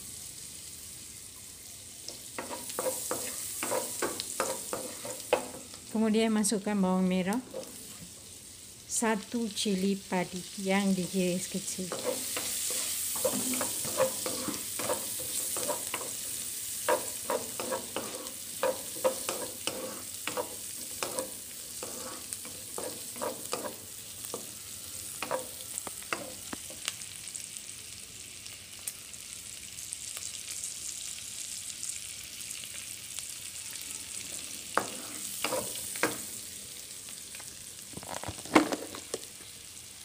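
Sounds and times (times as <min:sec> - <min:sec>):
vegetables sizzling in butter: 0:00.0 - 0:40.0
wooden spatula scraping a pan: 0:02.4 - 0:05.7, 0:11.8 - 0:24.5, 0:25.1 - 0:26.4, 0:34.7 - 0:36.2.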